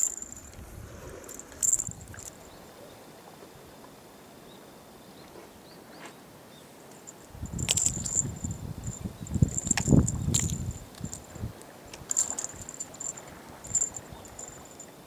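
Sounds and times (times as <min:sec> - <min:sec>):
cat toy jingling and rustling: 0:00.0 - 0:02.4, 0:07.0 - 0:14.9.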